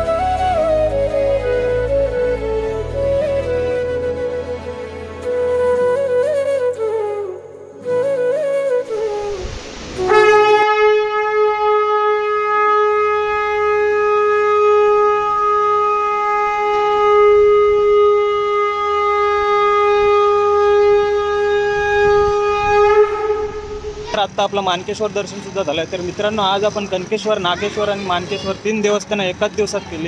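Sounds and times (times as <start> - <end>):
conch shell blast: 10.0 - 24.1.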